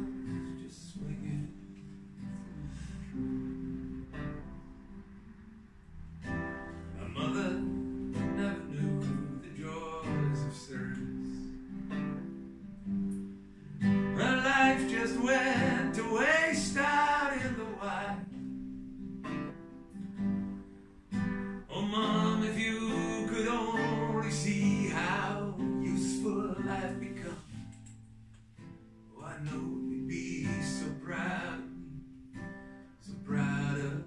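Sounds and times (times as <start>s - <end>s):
acoustic guitar playing: 0.0s - 34.0s.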